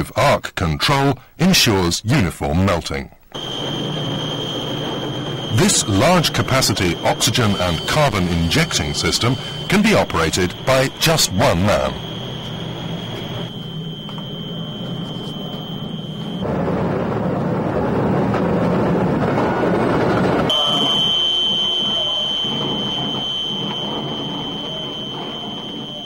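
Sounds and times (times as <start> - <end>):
high-pitched furnace whine: 3.3 - 26.0
loud rushing roar: 3.4 - 20.8.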